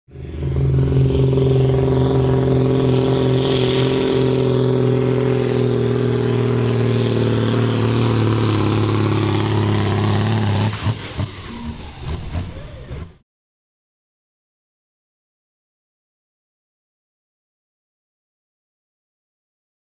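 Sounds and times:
tractor diesel engine straining: 0:00.1 - 0:13.2.

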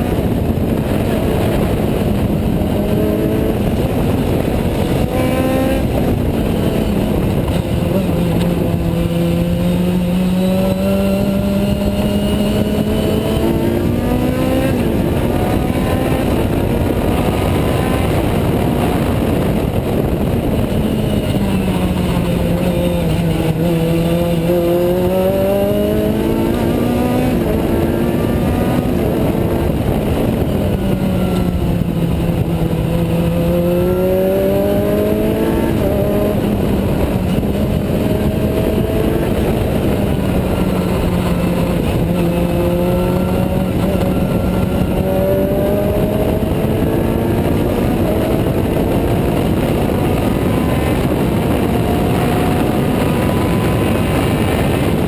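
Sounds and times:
race car engine revving: 0:00.0 - 0:55.0
wind and road noise: 0:00.0 - 0:55.0.

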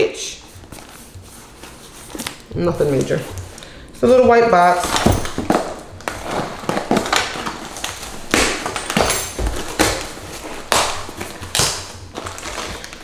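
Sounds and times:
cardboard box being opened: 0:04.7 - 0:13.0.

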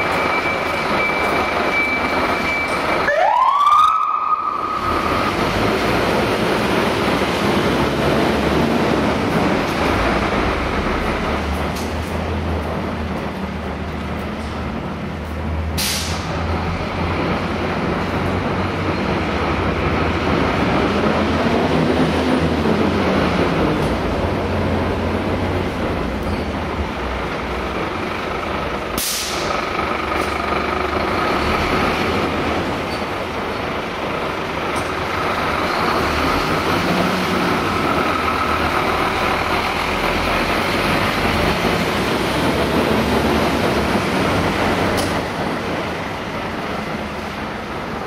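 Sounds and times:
fire truck diesel engine: 0:00.0 - 0:48.0
short sharp hiss: 0:15.8 - 0:16.3, 0:29.0 - 0:29.5.

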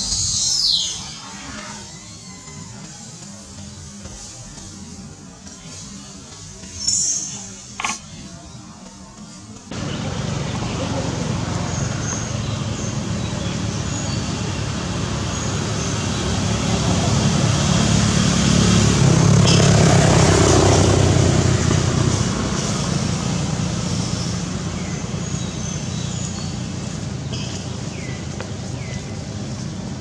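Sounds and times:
vehicle passing: 0:09.7 - 0:30.0.

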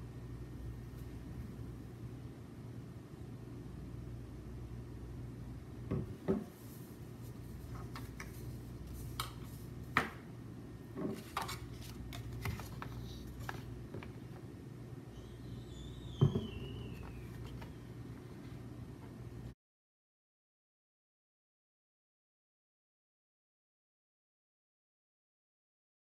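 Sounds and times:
steady low hum: 0:00.0 - 0:19.6
paper cards handled: 0:06.7 - 0:09.7, 0:11.1 - 0:14.2, 0:16.8 - 0:17.8
glass bottle knocking on tabletop: 0:16.2 - 0:16.5.

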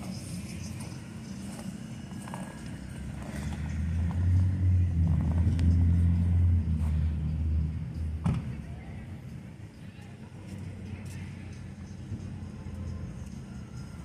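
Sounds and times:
low steady rumble: 0:00.1 - 0:14.0.

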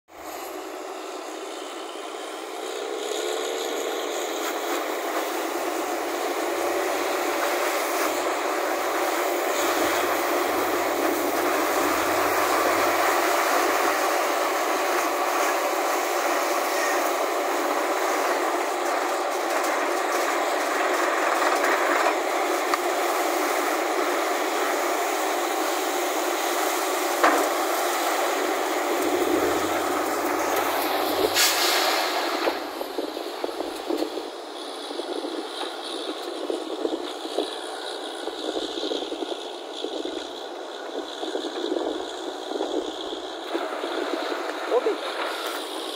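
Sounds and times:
drilling rig rushing and grinding: 0:00.3 - 0:22.5, 0:25.4 - 0:34.0.

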